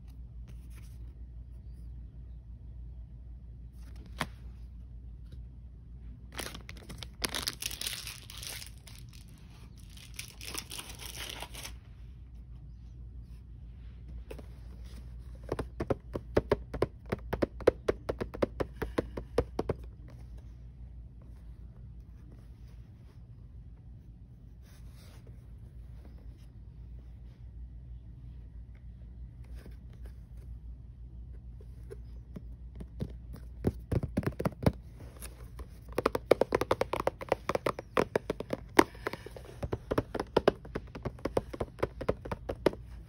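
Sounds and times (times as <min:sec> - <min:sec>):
plastic packaging crinkling and tearing: 0:06.3 - 0:11.8
fast sharp taps: 0:15.4 - 0:20.0, 0:32.4 - 0:34.9, 0:35.6 - 0:43.0.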